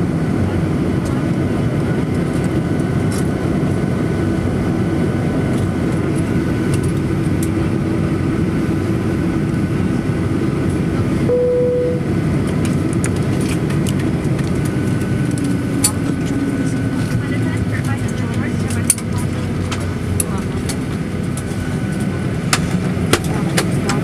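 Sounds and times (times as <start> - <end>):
aircraft cabin rumble: 0.0 - 24.0
jet engines humming at idle: 0.0 - 24.0
single tone: 11.3 - 12.1.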